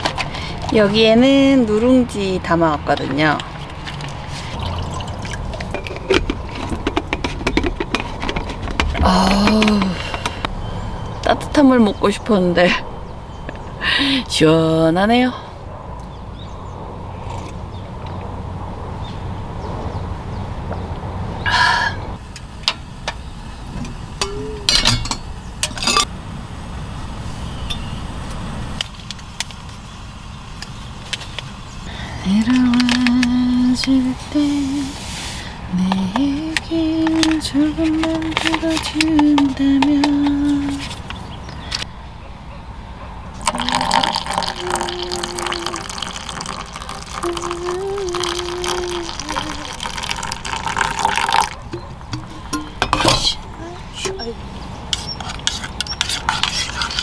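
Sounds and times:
water pouring into a metal cup: 3.9s - 6.7s, 43.4s - 51.6s
metal kettle handle clinking: 24.7s - 26.1s.

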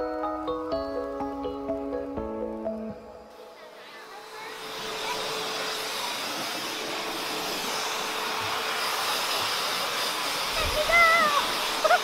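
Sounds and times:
blow dryer air rushing: 2.9s - 12.0s.

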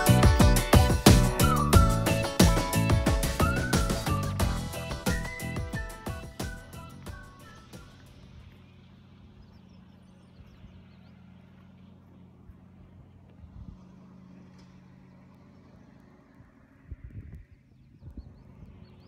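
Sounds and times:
low bumps: 0.0s - 8.7s
idling motor hum: 0.0s - 19.0s.

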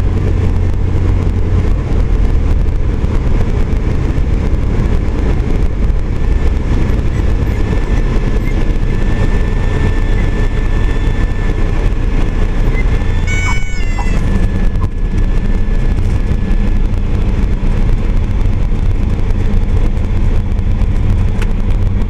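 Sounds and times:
aircraft piston engine running: 0.0s - 22.0s
brief high-pitched squeal: 12.7s - 14.6s.

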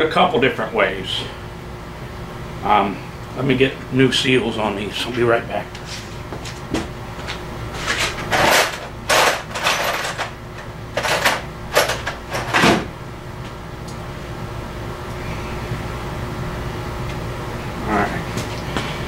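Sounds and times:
steady low hum: 0.0s - 19.0s
clattering knocks and scrapes: 5.8s - 10.4s.

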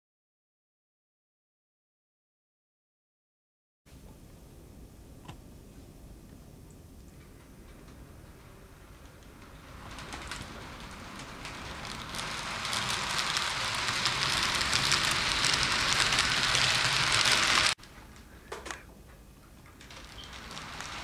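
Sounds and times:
model train wheels rattling on rail: 7.2s - 17.8s, 19.4s - 21.0s.

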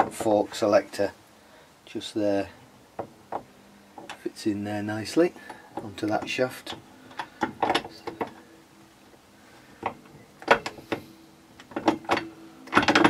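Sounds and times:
metal gears clicking and knocking: 11.7s - 13.0s.

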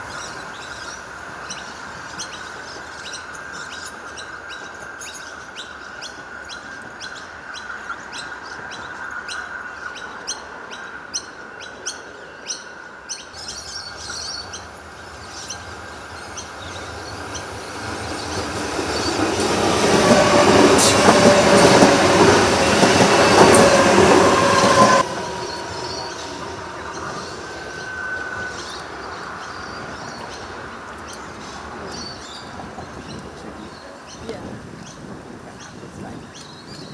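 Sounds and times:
electric train passing at speed: 0.0s - 36.9s
train wheels rushing on rails: 12.7s - 36.0s.

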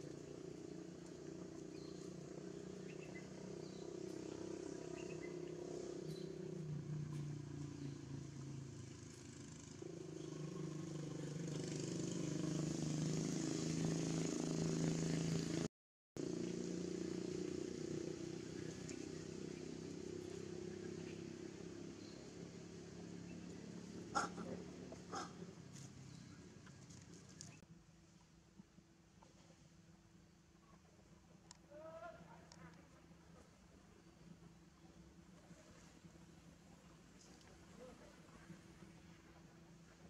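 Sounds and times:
motor engine running: 0.0s - 27.6s.

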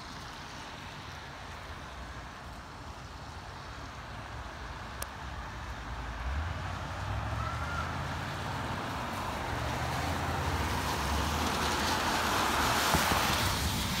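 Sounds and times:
car road rumble: 0.1s - 14.0s
wind hiss: 9.0s - 14.0s.

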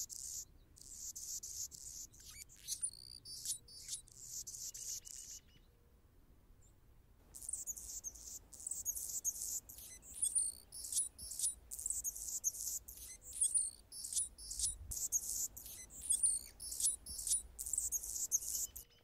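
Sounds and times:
hummingbird singing: 7.4s - 19.0s.

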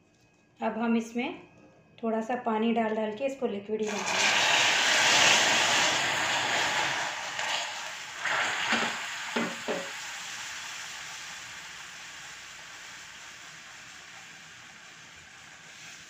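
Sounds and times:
caramel sizzling in a pan: 3.8s - 16.0s.

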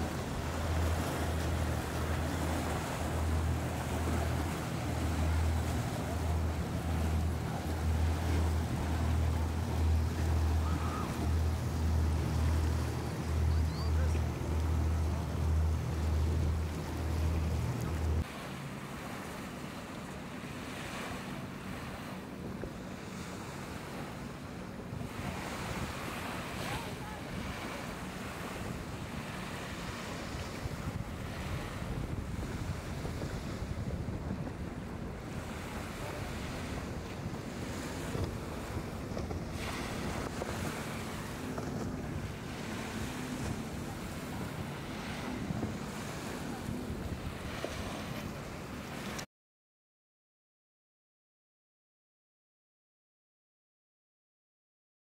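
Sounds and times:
wind on microphone: 0.0s - 18.3s, 24.8s - 49.2s
boat engine drone: 0.0s - 49.2s
small waves washing: 0.0s - 49.2s
splashing wake: 0.0s - 49.3s
wind noise: 30.0s - 42.2s.

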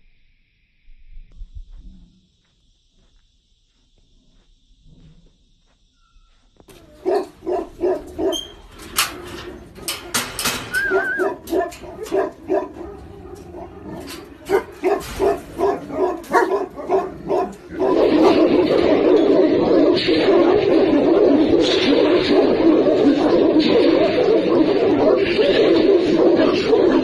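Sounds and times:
dog barking deeply: 6.7s - 27.0s
loud rough continuous sound: 6.7s - 27.0s.

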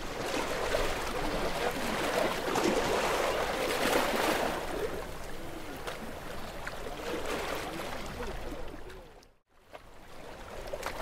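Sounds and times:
small waves lapping and splashing: 0.0s - 11.0s.

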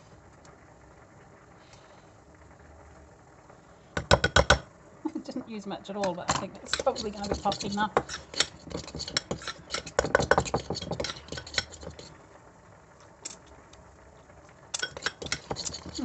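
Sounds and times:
cutlery clinking against a bowl: 6.7s - 12.1s, 14.8s - 16.0s.

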